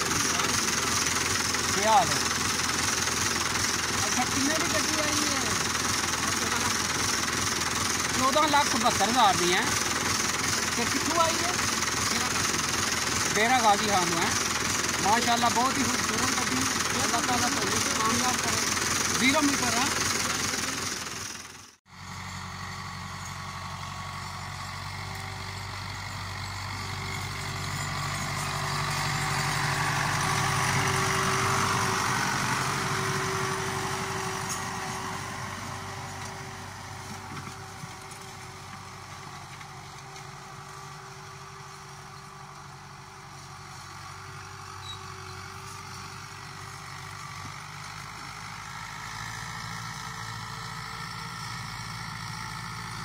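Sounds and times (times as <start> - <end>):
tractor diesel engine under load: 0.0 - 53.0.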